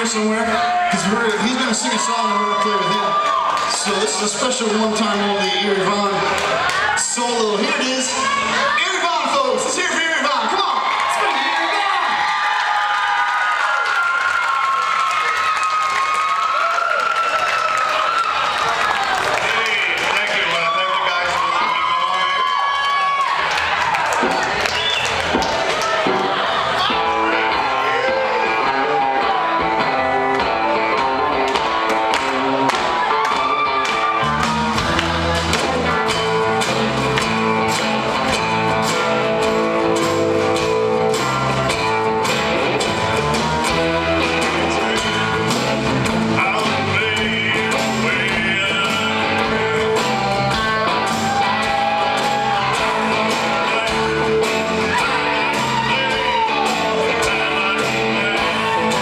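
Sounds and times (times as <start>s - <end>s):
country-rock band playing: 0.0s - 59.0s
man singing: 43.6s - 50.7s, 52.5s - 59.0s.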